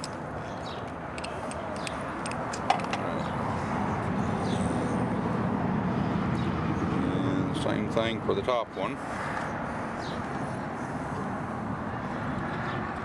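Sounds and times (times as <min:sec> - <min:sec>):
small metallic clicks: 0:00.0 - 0:03.0
outdoor background rumble: 0:00.0 - 0:13.0.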